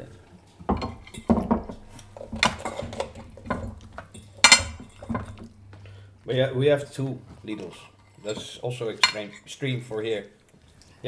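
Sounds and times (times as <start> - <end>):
forks scraping and clinking plates: 0.8 - 5.5, 7.5 - 9.5.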